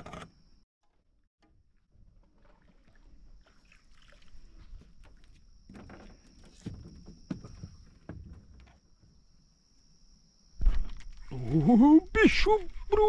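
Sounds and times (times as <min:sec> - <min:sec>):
knocks and clicks in a metal boat: 0:05.0 - 0:08.8.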